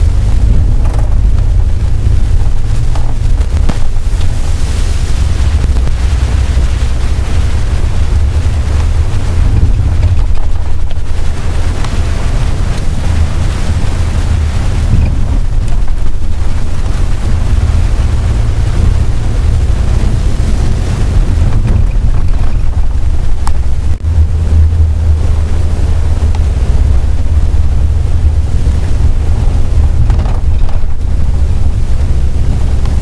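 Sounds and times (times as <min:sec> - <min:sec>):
vehicle cabin rumble: 0:00.0 - 0:33.0
wind buffeting microphone: 0:00.0 - 0:33.0.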